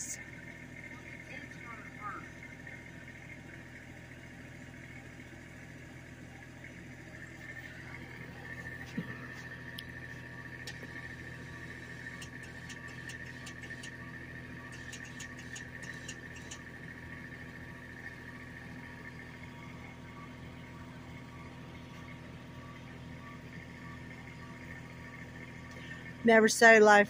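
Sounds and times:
faint engine hum: 0.0s - 27.0s
sharp high ticks: 14.7s - 16.6s.

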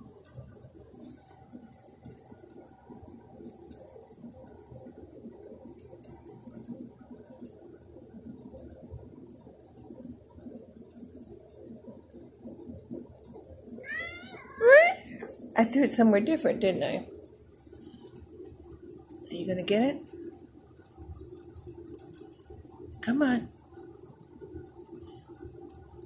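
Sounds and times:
small clicks: 0.1s - 15.4s, 17.1s - 26.0s.

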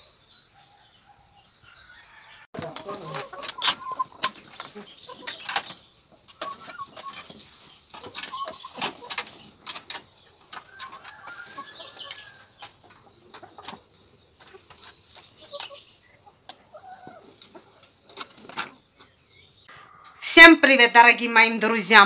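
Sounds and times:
chicken call: 2.0s - 5.4s.

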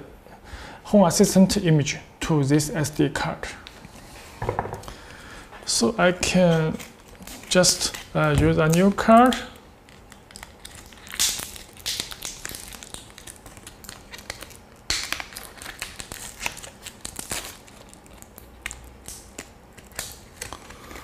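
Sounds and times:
packaging crinkling and tearing: 5.7s - 21.0s.

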